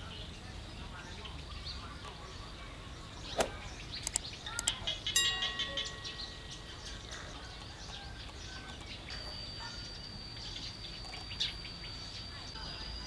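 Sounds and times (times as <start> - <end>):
birds chirping: 0.0 - 13.0
steady high-pitched tone: 5.0 - 13.0.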